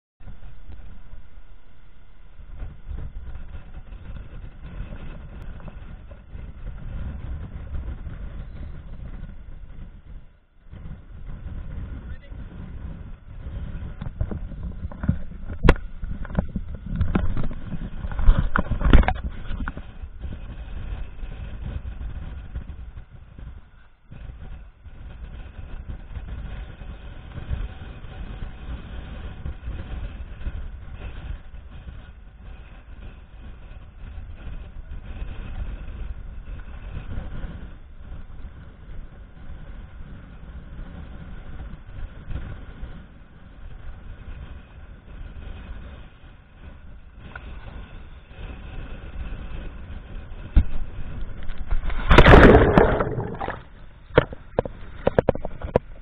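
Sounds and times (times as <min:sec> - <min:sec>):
boat engine rumbling: 0:00.2 - 0:10.3, 0:50.0 - 0:56.0.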